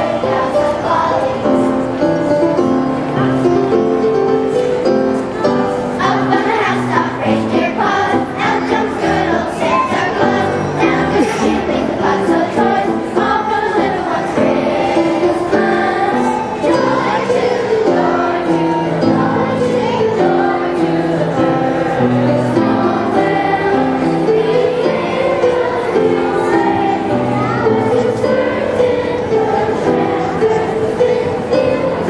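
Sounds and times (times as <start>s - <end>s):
children's choir singing: 0.0s - 32.0s.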